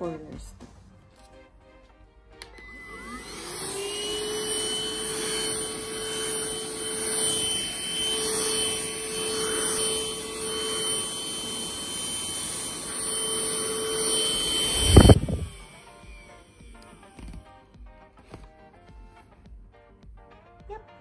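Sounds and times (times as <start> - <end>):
handheld vacuum cleaner whining: 2.4 - 18.5.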